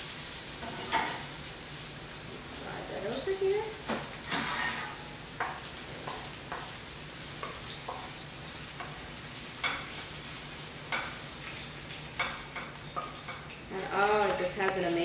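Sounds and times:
steady sizzle from hot pan: 0:00.0 - 0:15.0
wooden spatula scraping frying pan: 0:04.0 - 0:06.8.

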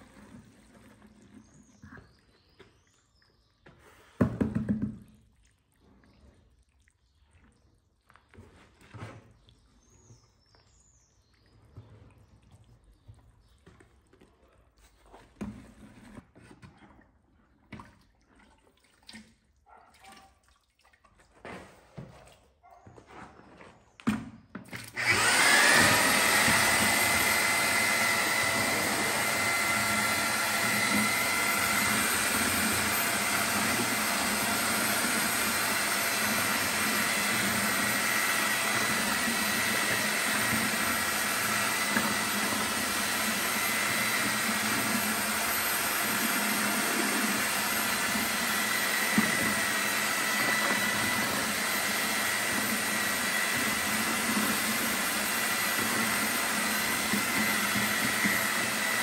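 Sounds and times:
paddle stirring plaster: 0:00.0 - 0:20.2, 0:21.0 - 0:59.0
electric paddle mixer whining: 0:24.7 - 0:59.0.

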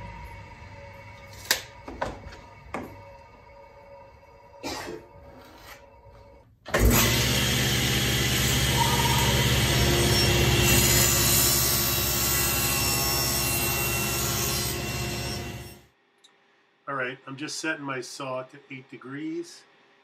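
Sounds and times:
table saw running: 0:06.8 - 0:15.8.

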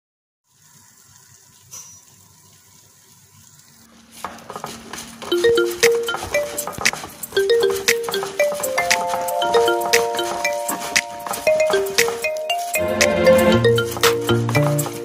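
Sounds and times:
faint hiss: 0:00.5 - 0:05.2
upbeat marimba-like background music: 0:05.0 - 0:15.0.

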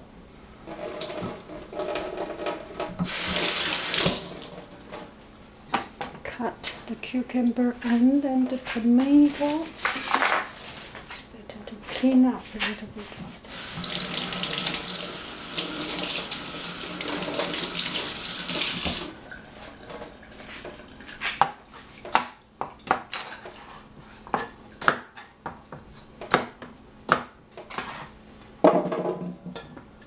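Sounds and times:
cleaver chopping on cutting board: 0:26.2 - 0:28.0.

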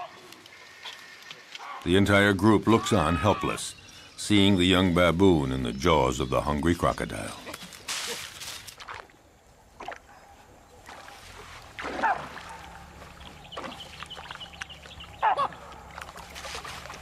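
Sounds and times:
water splashing and sloshing: 0:07.6 - 0:17.0.

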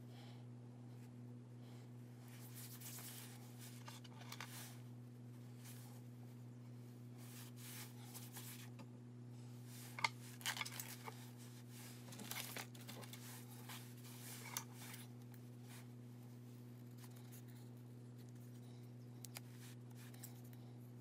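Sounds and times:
steady low hum: 0:00.0 - 0:21.0
craft materials rustling and crinkling: 0:02.2 - 0:04.8, 0:09.6 - 0:16.4.

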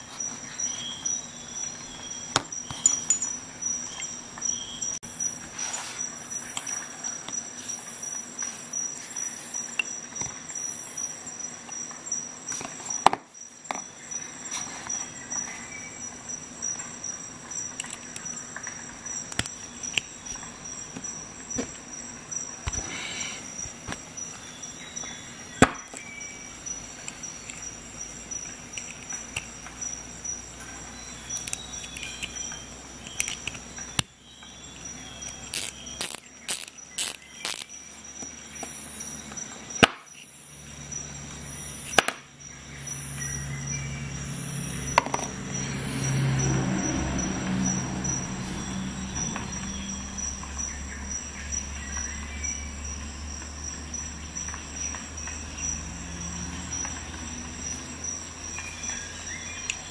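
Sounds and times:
metal tool parts clicking: 0:17.8 - 0:18.3, 0:31.3 - 0:34.1, 0:35.2 - 0:37.8.

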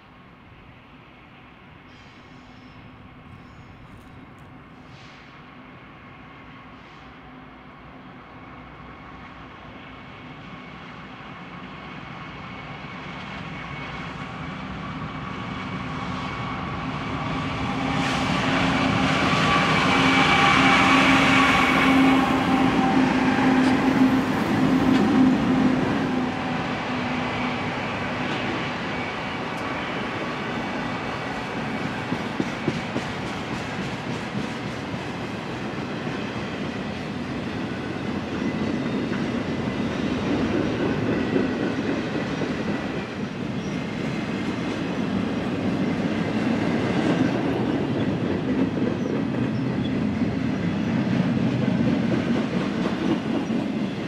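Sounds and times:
diesel locomotive hum: 0:00.0 - 0:54.0
train wheels clicking over rail joints: 0:31.5 - 0:37.0.

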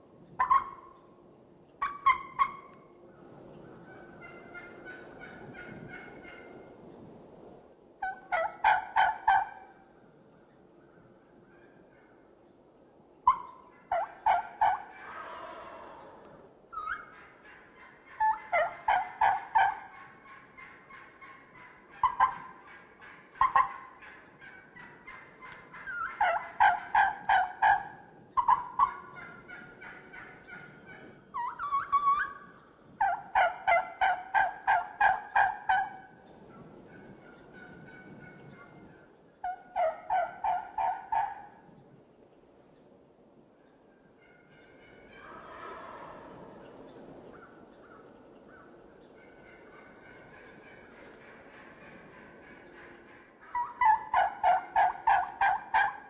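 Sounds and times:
turkey clucks: 0:00.3 - 0:01.1, 0:01.7 - 0:02.9, 0:03.5 - 0:07.0, 0:08.0 - 0:09.9, 0:13.2 - 0:41.8, 0:44.2 - 0:56.0
turkey yelping: 0:00.4 - 0:01.0, 0:01.8 - 0:02.8, 0:03.9 - 0:06.6, 0:08.0 - 0:09.7, 0:13.3 - 0:36.1, 0:39.4 - 0:41.6, 0:44.2 - 0:46.5, 0:49.1 - 0:56.0.

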